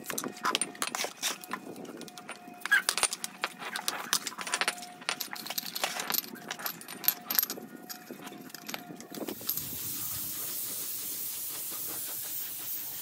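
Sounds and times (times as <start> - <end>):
metal parts clinking: 0.0 - 9.9.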